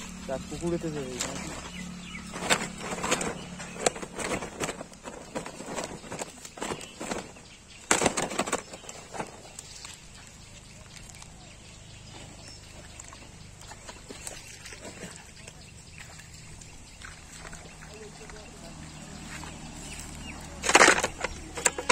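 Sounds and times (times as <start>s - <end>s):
quiet outdoor background: 0.0s - 21.9s
fish flapping against sack: 1.3s - 9.9s.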